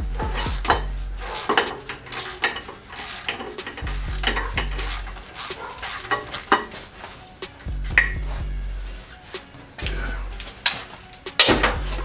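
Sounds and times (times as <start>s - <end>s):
metal tools clinking: 0.2s - 7.6s, 8.8s - 12.0s
socket ratchet clicking: 0.3s - 7.1s.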